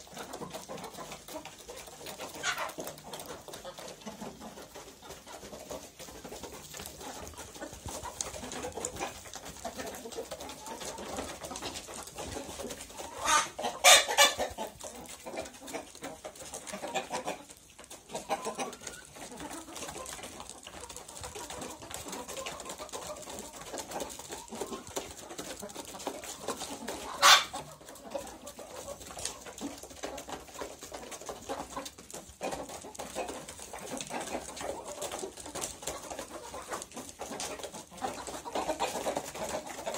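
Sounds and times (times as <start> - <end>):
chickens clucking: 0.0 - 39.9
chicken squawks: 12.9 - 15.9, 26.4 - 28.9.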